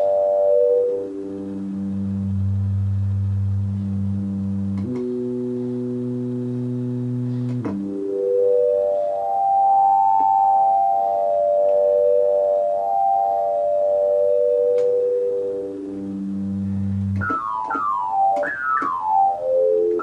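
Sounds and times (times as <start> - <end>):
synthesizer low note sweeping: 0.0 - 20.0
click: 4.8 - 5.1, 14.7 - 15.0.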